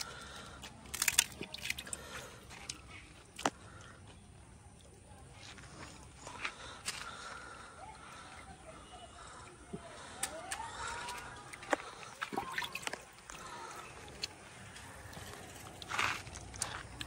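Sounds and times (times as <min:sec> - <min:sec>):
water sloshing and splashing: 0:00.0 - 0:03.8, 0:09.2 - 0:17.0
faint voices: 0:00.0 - 0:17.0.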